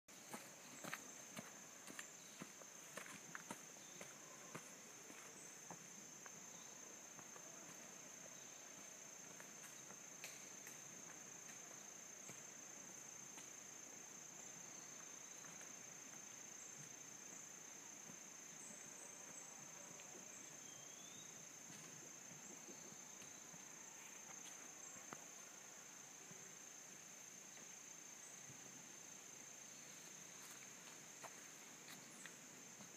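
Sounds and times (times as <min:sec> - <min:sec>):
footsteps on dirt trail: 0:00.1 - 0:06.4, 0:30.0 - 0:32.9
shrill insect chorus: 0:00.3 - 0:22.2.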